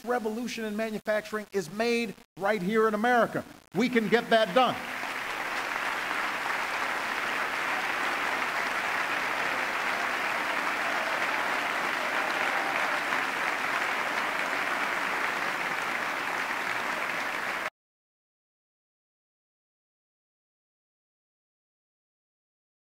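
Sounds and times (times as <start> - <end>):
large audience applauding: 3.8 - 17.7.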